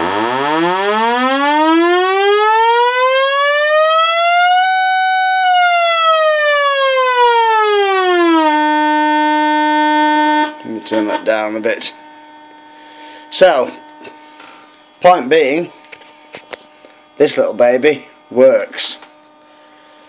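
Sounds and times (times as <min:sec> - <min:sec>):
buzzy sawtooth test tone sweeping: 0:00.0 - 0:15.8.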